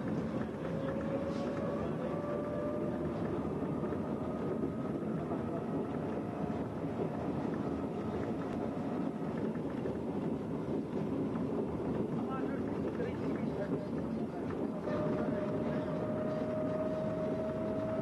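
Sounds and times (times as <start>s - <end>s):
wheels rumbling on rails: 0.0s - 18.0s
engine drone: 13.8s - 18.0s.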